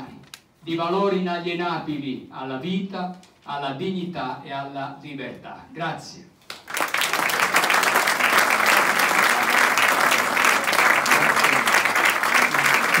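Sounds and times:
audience applauding: 6.5 - 13.0.

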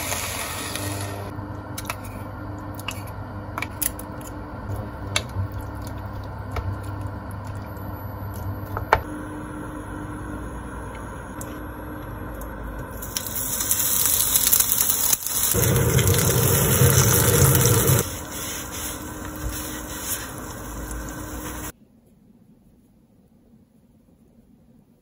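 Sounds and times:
steady low hum: 1.1 - 25.0
water pouring into a pot: 13.0 - 18.0.

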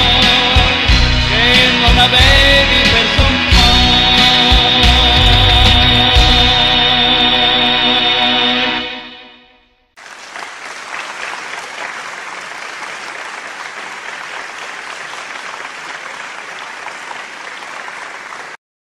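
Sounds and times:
song: 0.0 - 9.4
applause: 10.0 - 18.6.

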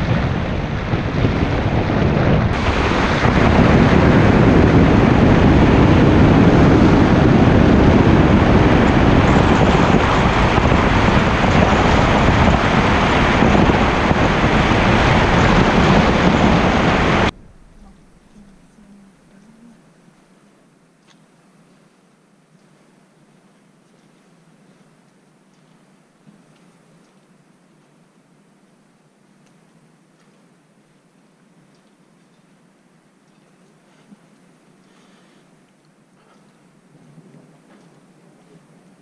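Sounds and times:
road noise: 0.0 - 19.6
wind rush on microphone: 0.0 - 19.8.

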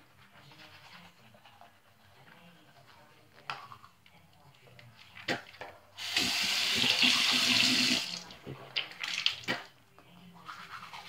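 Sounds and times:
sink tap running: 6.0 - 8.2.

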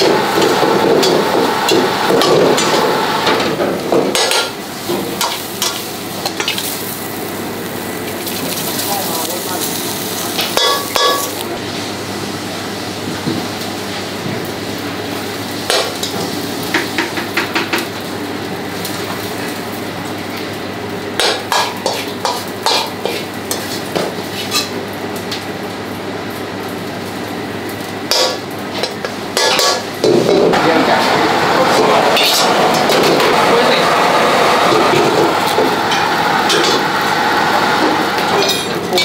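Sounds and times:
kitchen noise: 0.0 - 7.2, 8.0 - 11.6, 21.2 - 24.8, 28.1 - 39.0
food sizzling: 0.0 - 11.8, 13.5 - 25.2, 26.7 - 39.0.

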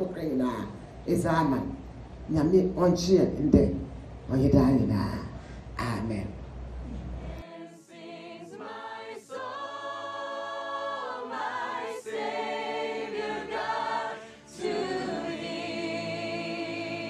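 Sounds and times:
choir singing long notes: 7.2 - 17.0.

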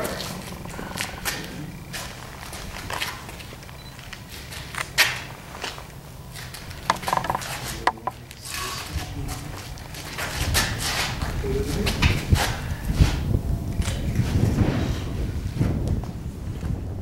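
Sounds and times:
steady low hum: 0.0 - 17.0
propeller handling knocks and taps: 6.9 - 8.2.

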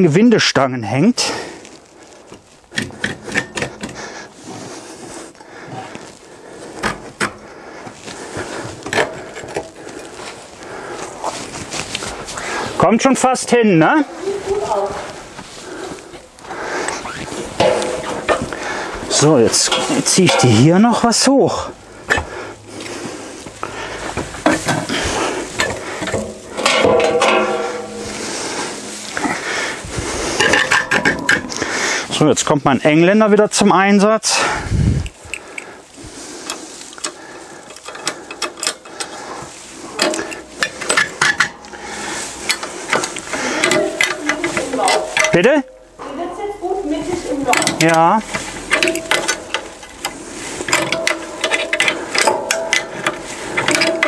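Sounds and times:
metal ladder scraping and rattling: 2.4 - 33.0, 36.0 - 54.0
soft scraping: 22.8 - 32.2.

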